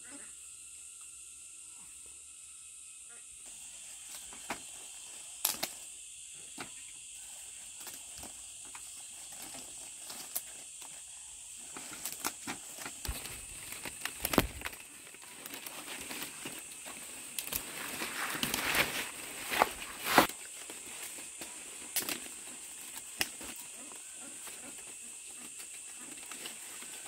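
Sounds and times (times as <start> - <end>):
dry palm leaves rustling: 3.5 - 27.0
leaves snapping and tapping: 5.4 - 5.8, 11.7 - 18.9, 19.5 - 23.6.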